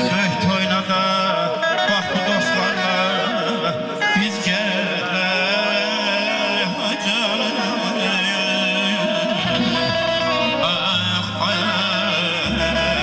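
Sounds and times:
instrumental accompaniment: 0.0 - 13.0
man singing ornamented vocal line: 0.0 - 13.0
deep bass layer: 8.2 - 13.0.

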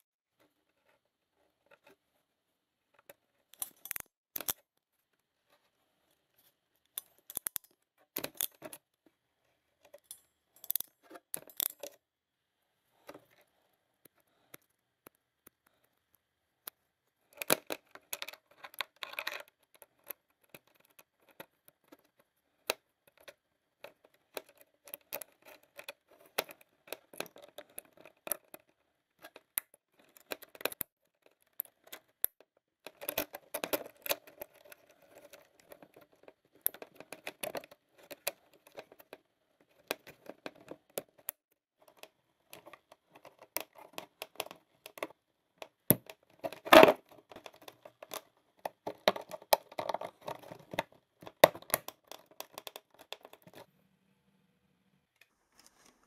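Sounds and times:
small clicks and taps of parts: 2.9 - 4.9, 6.8 - 9.1, 9.8 - 12.0, 14.0 - 53.7
parts scraping and rustling: 32.9 - 45.2.

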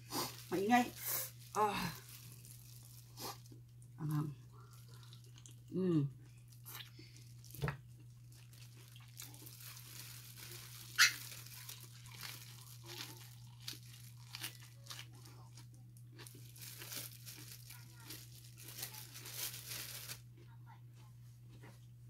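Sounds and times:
plastic gloves crinkling: 0.0 - 3.8, 6.4 - 20.3
eating crunches: 4.5 - 20.5.

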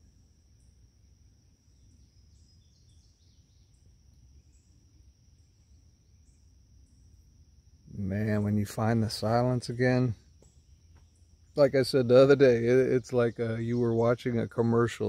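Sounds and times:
birds chirping: 7.9 - 15.0.

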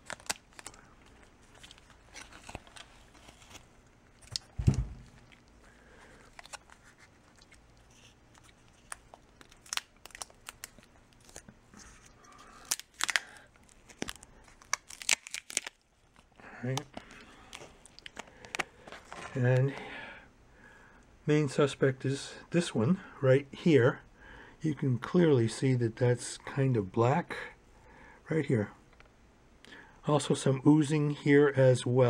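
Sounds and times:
loud thump: 4.6 - 5.1.

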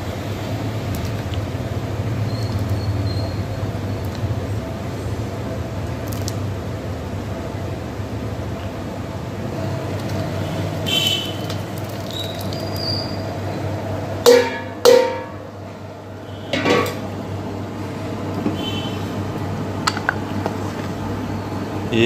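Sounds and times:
metal bowl clanging on pot: 14.2 - 15.4, 16.5 - 17.0.

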